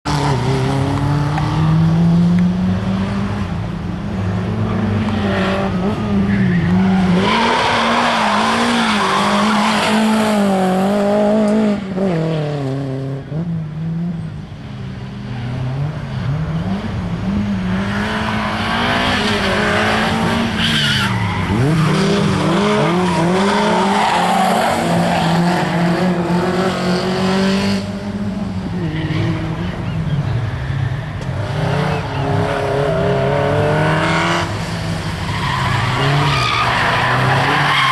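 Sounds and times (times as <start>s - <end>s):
car engine revving: 15.5s - 30.0s, 31.3s - 37.9s.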